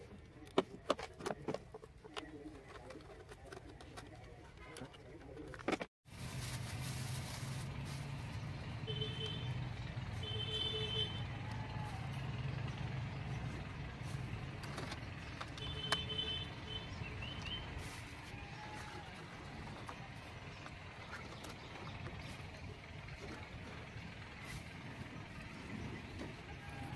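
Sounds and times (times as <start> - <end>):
low motor hum: 6.2 - 26.9.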